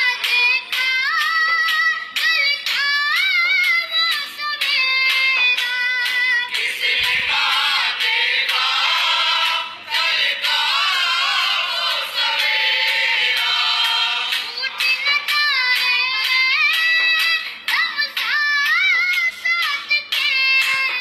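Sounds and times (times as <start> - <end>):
choir singing song: 6.4 - 15.3.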